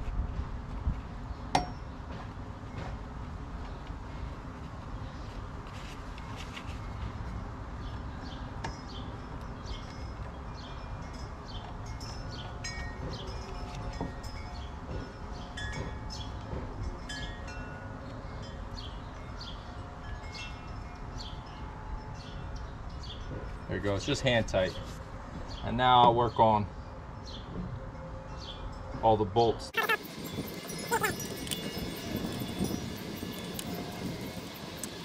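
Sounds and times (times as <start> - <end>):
metal tools clinking together: 30.6 - 33.8.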